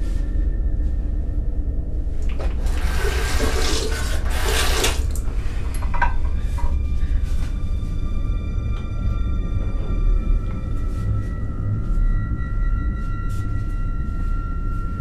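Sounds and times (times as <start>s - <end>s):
sink tap running: 2.2s - 6.3s.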